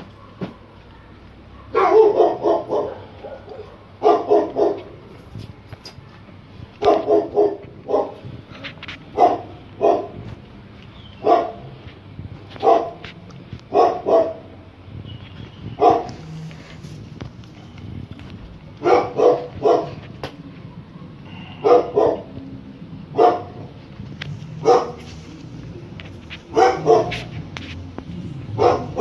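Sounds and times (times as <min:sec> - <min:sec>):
dog barking: 0:00.0 - 0:05.0, 0:06.8 - 0:08.3, 0:09.1 - 0:10.3, 0:11.2 - 0:11.8, 0:12.6 - 0:13.1, 0:13.7 - 0:14.6, 0:15.7 - 0:16.2, 0:18.8 - 0:20.1, 0:20.9 - 0:22.4, 0:23.1 - 0:23.7, 0:24.6 - 0:25.1, 0:26.4 - 0:27.4, 0:28.5 - 0:29.0.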